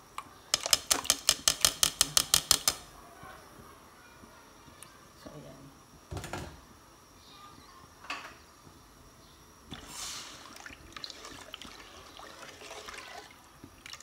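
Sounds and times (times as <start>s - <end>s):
liquid splashing: 9.7s - 14.0s.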